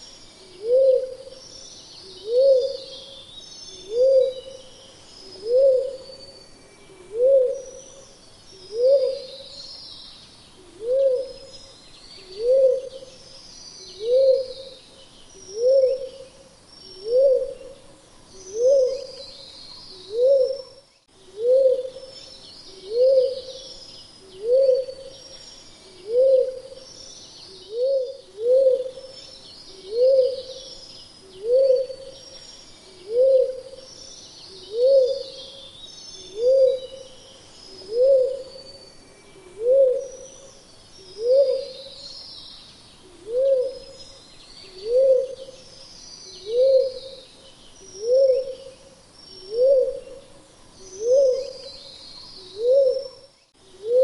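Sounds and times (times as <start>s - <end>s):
faint high-pitched chirping: 0.0s - 54.0s
dove hooting: 0.5s - 1.4s, 2.1s - 3.0s, 3.8s - 4.6s, 5.3s - 6.1s, 7.0s - 7.8s, 8.7s - 9.4s, 10.6s - 11.5s, 12.3s - 13.2s, 14.0s - 14.8s, 15.5s - 16.3s, 17.0s - 17.8s, 18.5s - 19.2s, 20.0s - 23.6s, 24.4s - 25.2s, 26.0s - 26.8s, 27.7s - 29.2s, 29.8s - 30.6s, 31.4s - 32.2s, 33.0s - 33.9s, 34.6s - 35.6s, 36.2s - 37.2s, 37.8s - 38.5s, 39.4s - 40.2s, 41.1s - 41.9s, 43.1s - 44.0s, 44.7s - 45.6s, 46.4s - 47.2s, 48.0s - 48.8s, 49.4s - 50.3s, 51.0s - 51.7s, 52.4s - 54.0s.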